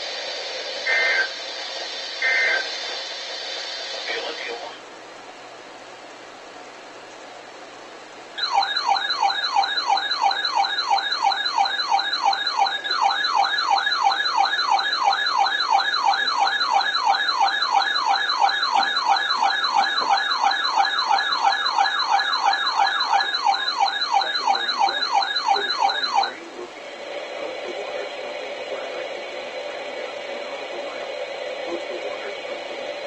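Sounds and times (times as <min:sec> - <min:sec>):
whooping alert siren: 0:00.9 - 0:01.3, 0:02.2 - 0:02.7, 0:08.4 - 0:26.5, 0:27.1 - 0:31.1.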